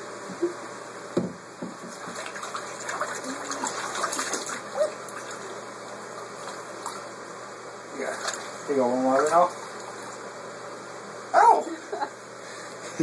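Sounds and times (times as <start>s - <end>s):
bathwater splashing: 1.8s - 7.2s, 8.0s - 10.3s.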